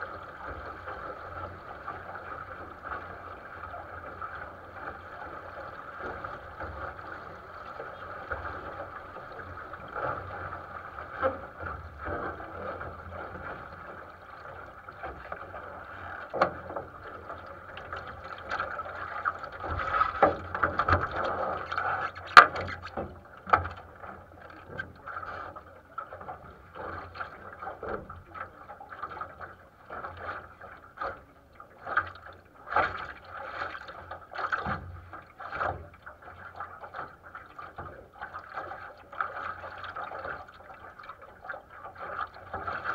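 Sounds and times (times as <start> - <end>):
water slapping against boat hull: 0.0 - 42.9
knocks and taps on boat: 0.3 - 25.2, 32.7 - 36.1.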